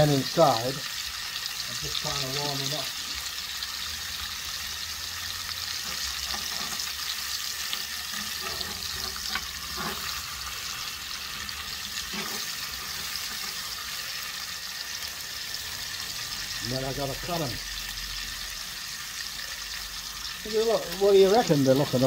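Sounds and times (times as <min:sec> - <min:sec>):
ribs sizzling: 0:00.0 - 0:22.0.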